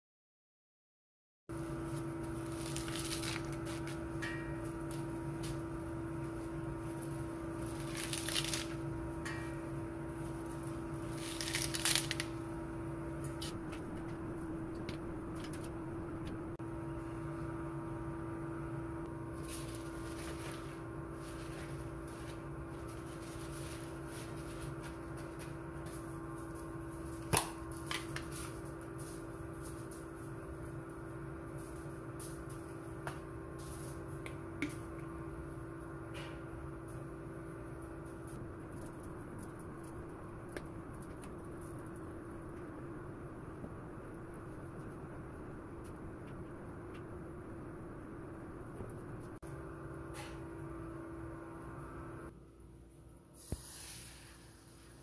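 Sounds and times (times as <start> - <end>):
steady background hum: 1.5 - 55.0
spinach stems snapping: 7.7 - 8.8, 11.2 - 12.4.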